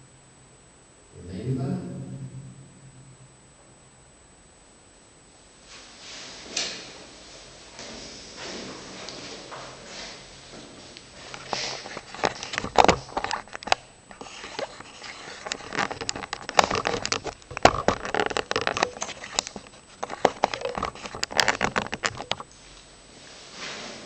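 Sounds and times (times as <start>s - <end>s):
rustling: 5.6s - 24.0s
irregular clicks and knocks: 11.3s - 22.5s.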